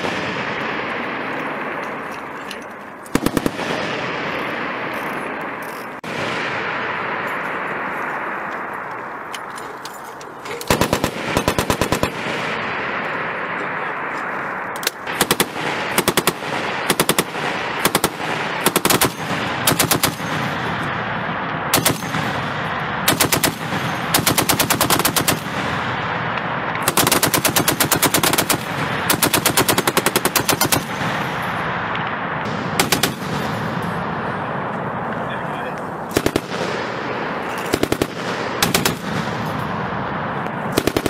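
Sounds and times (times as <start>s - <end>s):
steady background rush: 0.0s - 41.0s
heavy machine gun bursts: 10.4s - 12.4s.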